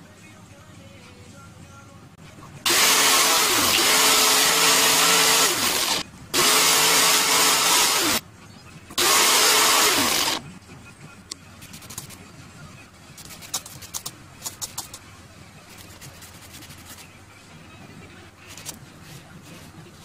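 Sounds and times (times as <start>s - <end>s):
angle grinder motor whine: 2.7s - 8.2s, 9.0s - 10.4s.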